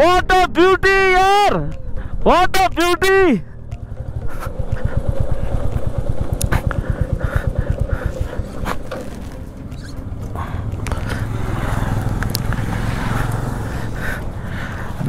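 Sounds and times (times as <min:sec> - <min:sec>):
motorcycle engine thumping: 0:03.7 - 0:11.3.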